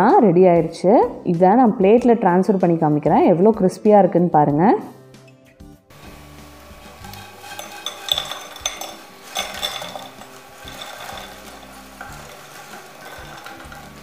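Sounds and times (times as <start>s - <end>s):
croutons clattering onto a dish: 7.0s - 14.0s.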